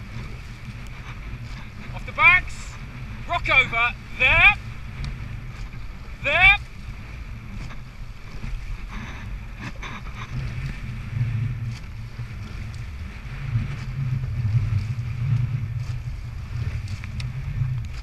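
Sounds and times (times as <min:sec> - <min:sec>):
oars clunking: 0:00.0 - 0:18.0
water rushing along hull: 0:00.0 - 0:18.0
wind buffeting microphone: 0:00.0 - 0:18.0.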